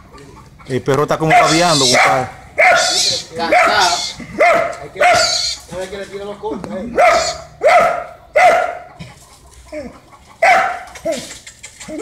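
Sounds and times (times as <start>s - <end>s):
dog barking: 1.2s - 5.4s, 6.9s - 9.0s, 10.4s - 11.2s.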